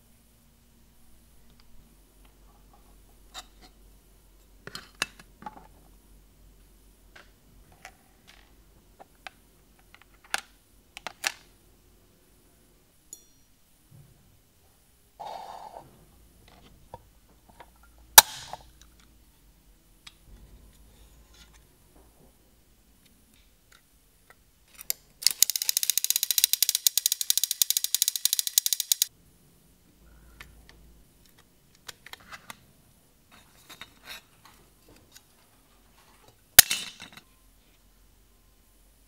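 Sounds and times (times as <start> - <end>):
toy parts clicking and clinking: 24.7 - 29.1.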